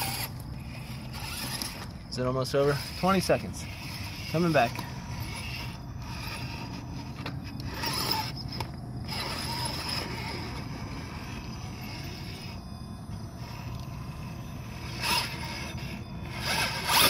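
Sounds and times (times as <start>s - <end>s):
toy car motor whining: 0.0s - 17.0s.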